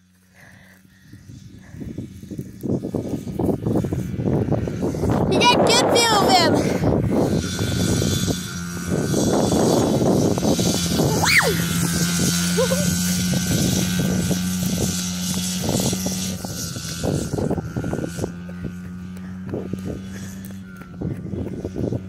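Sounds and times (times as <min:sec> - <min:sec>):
distant dirt bike engine: 0:00.0 - 0:22.0
rising and falling squeal: 0:11.0 - 0:11.8.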